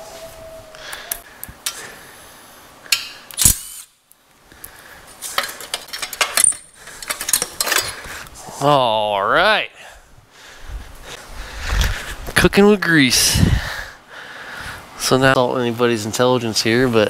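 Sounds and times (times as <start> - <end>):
metal hand tools clinking: 5.2 - 8.1.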